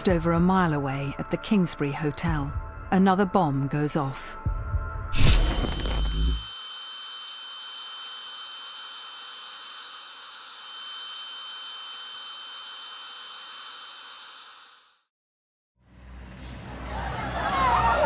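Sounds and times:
high-pitched ringing tone: 5.2s - 14.9s.

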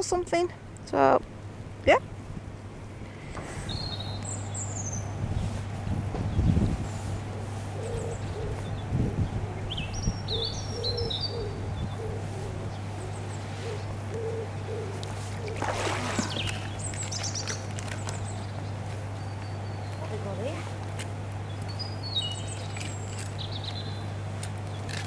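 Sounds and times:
steady low hum: 0.0s - 25.0s
small birds chirping: 3.0s - 20.6s, 21.3s - 25.0s
rustling noise: 5.2s - 9.1s
pigeon cooing: 7.3s - 16.8s.

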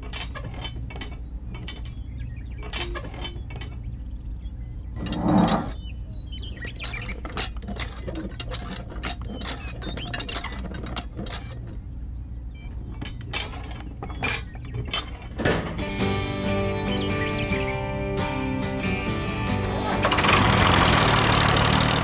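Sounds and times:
low steady hum: 0.0s - 17.5s
clatter: 6.6s - 11.8s, 20.0s - 22.0s.

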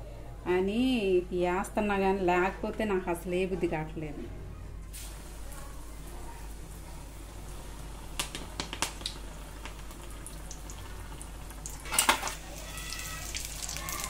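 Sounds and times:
fritters sizzling in hot oil: 4.9s - 14.0s.

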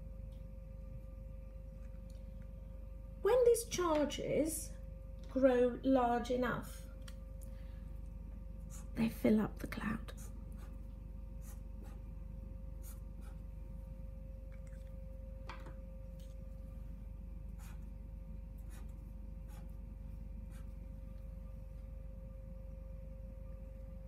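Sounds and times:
low hum: 0.0s - 24.0s
marker pen scratching paper: 11.4s - 12.0s, 12.8s - 13.5s, 18.6s - 19.8s, 20.4s - 20.8s.

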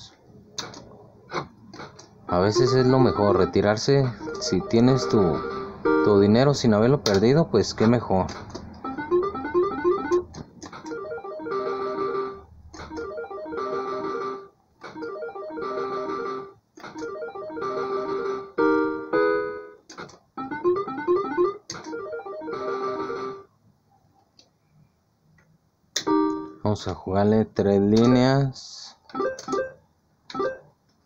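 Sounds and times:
slot machine beeping jingle: 2.3s - 6.2s, 8.8s - 10.2s, 10.9s - 19.7s, 20.4s - 23.5s.

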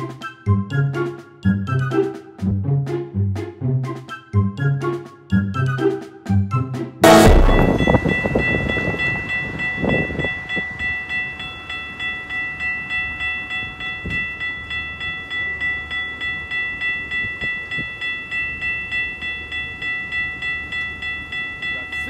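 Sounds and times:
level crossing warning bell: 7.0s - 22.0s.

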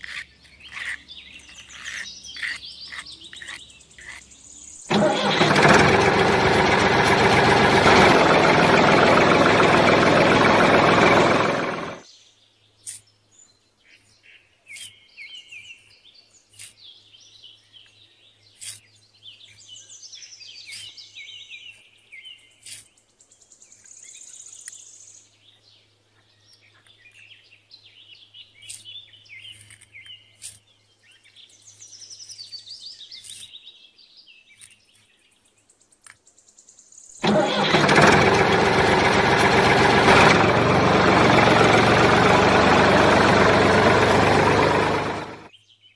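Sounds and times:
birds chirping: 0.0s - 4.9s
loud steady motor: 4.9s - 12.0s, 37.2s - 45.5s.

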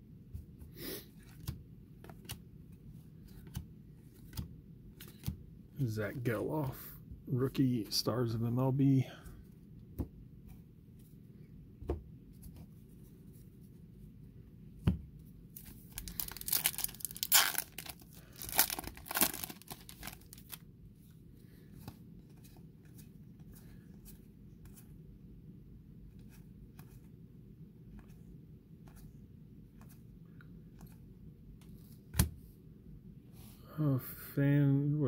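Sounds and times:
wrapper tearing and crinkling: 15.9s - 20.6s.

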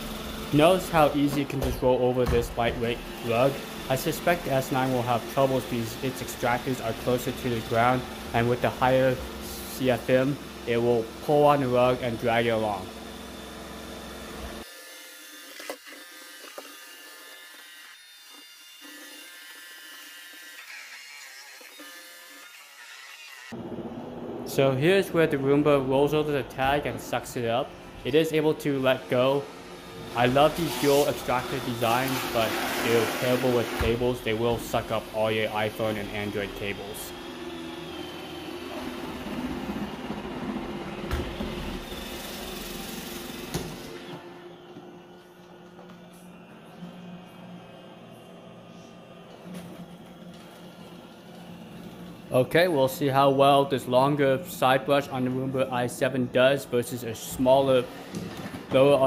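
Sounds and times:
robot vacuum motor whine: 2.5s - 23.6s, 28.8s - 52.3s
robot vacuum motor hum: 29.0s - 47.4s.

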